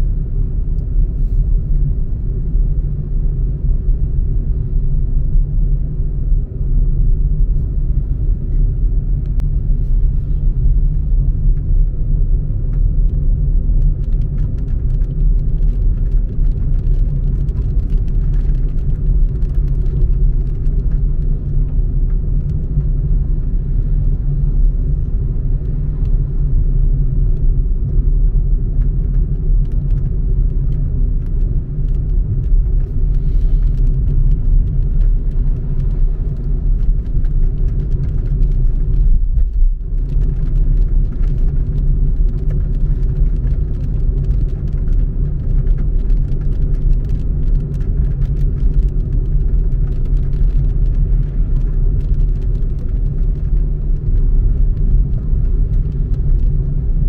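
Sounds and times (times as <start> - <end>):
car road and wind rumble: 0.0 - 57.0.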